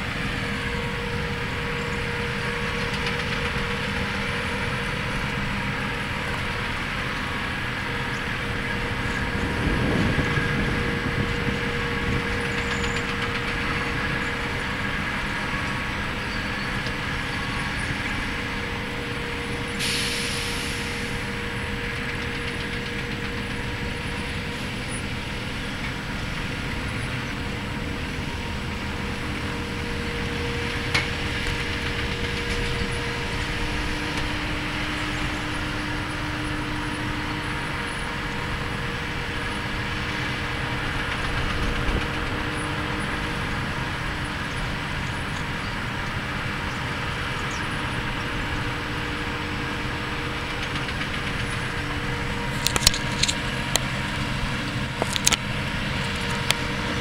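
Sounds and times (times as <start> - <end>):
diesel locomotive idling: 0.0 - 57.0
air hiss: 19.6 - 21.6.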